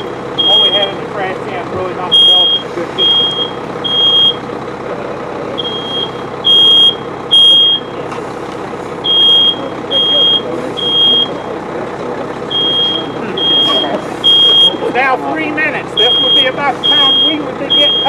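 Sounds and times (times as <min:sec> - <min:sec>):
smoke alarm beeping: 0:00.0 - 0:01.0, 0:02.1 - 0:04.4, 0:05.6 - 0:08.0, 0:09.0 - 0:11.5, 0:12.5 - 0:15.0, 0:15.8 - 0:18.0.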